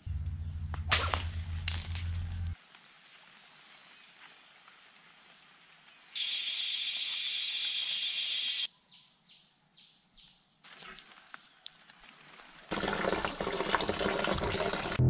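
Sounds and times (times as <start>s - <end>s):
high-pitched insect drone: 6.2s - 8.7s.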